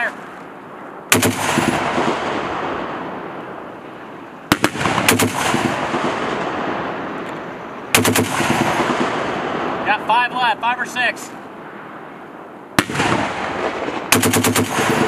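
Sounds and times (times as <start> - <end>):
rolling gunfire echo: 1.1 - 10.1, 12.7 - 15.0
heavy machine gun bursts: 12.8 - 15.0.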